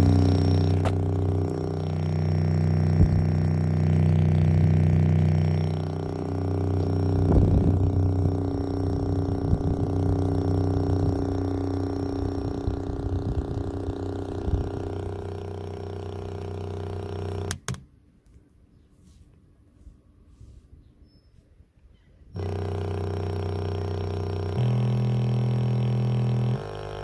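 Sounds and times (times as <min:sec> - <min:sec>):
speaker thumps: 0:00.0 - 0:13.7
low bass test tone: 0:00.0 - 0:17.5, 0:22.4 - 0:27.0.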